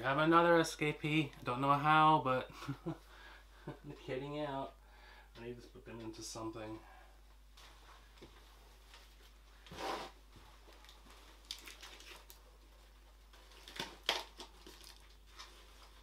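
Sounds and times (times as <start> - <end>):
plastic crinkles and clicks: 10.7 - 12.4, 13.3 - 16.0.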